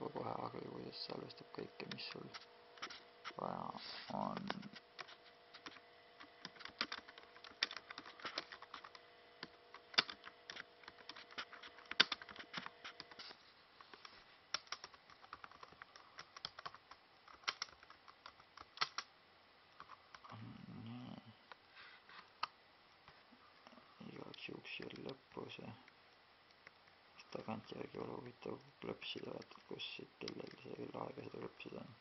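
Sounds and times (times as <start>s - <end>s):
faint steady hum: 0.0s - 32.0s
laptop keys typing: 4.2s - 19.1s, 19.8s - 20.4s, 26.5s - 31.5s.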